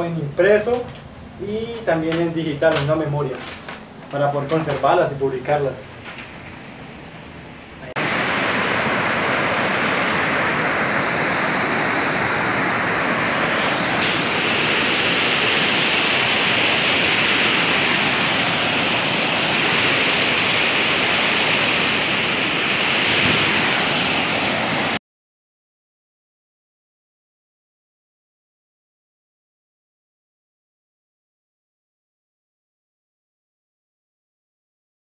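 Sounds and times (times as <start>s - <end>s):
rush of falling water: 7.9s - 25.0s.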